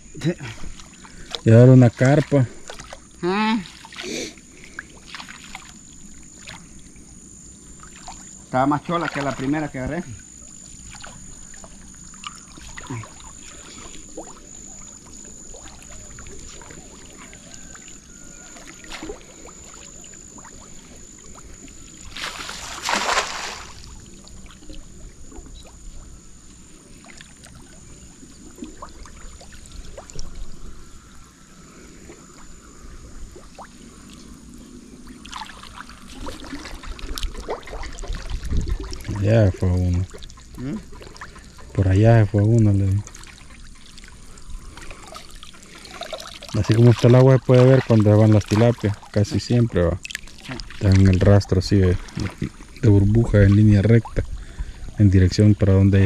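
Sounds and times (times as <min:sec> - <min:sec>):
water sloshing and trickling: 0:00.0 - 0:56.0
loud splash: 0:22.1 - 0:23.9.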